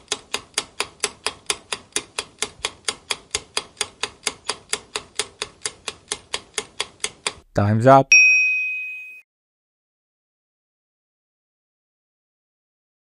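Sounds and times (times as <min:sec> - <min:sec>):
clock ticking: 0:00.0 - 0:07.5.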